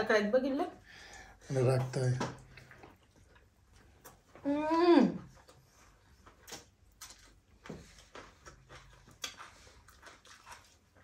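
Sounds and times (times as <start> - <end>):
chewing smacks: 1.8 - 4.4, 5.2 - 11.0.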